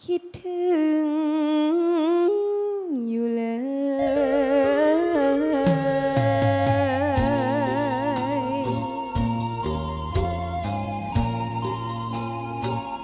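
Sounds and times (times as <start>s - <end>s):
girl singing with vibrato: 0.0s - 9.4s
backing music: 4.0s - 13.0s
bass: 5.6s - 13.0s.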